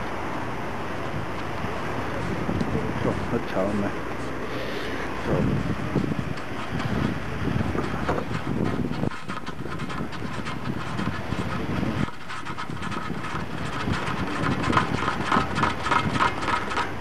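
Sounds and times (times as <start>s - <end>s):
wind noise: 0.0s - 17.0s
bicycle rattling: 5.2s - 17.0s.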